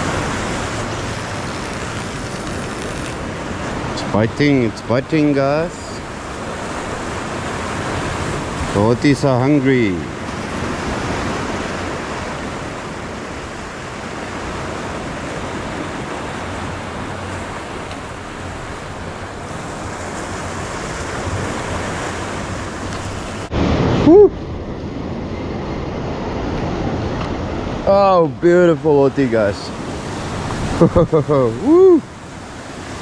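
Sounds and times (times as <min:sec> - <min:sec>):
wind on microphone: 0:10.0 - 0:27.9
rising and falling cry: 0:24.0 - 0:24.4, 0:31.5 - 0:32.1.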